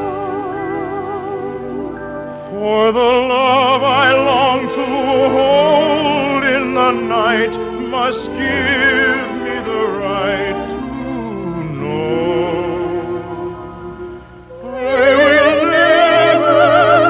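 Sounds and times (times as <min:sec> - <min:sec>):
orchestra playing: 0:00.0 - 0:17.0
operatic voice singing: 0:02.5 - 0:13.7, 0:14.5 - 0:17.0.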